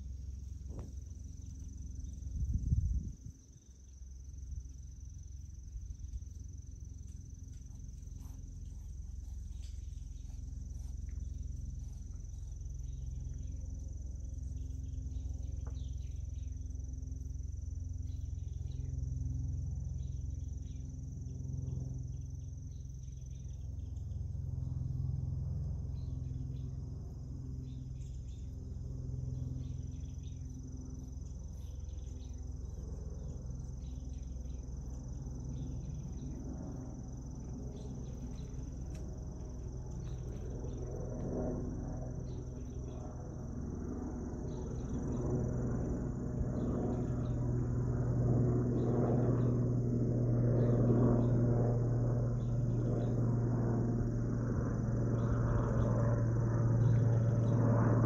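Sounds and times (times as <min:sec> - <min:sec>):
low rumble: 0:00.0 - 0:03.6, 0:05.6 - 0:16.5
high-pitched insect trill: 0:00.0 - 0:58.0.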